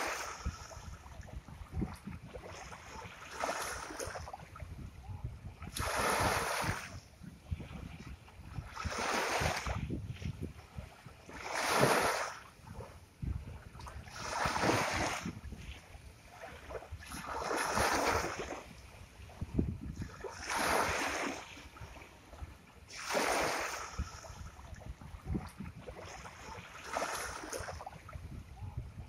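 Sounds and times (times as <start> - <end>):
ocean waves washing ashore: 0.0 - 29.0.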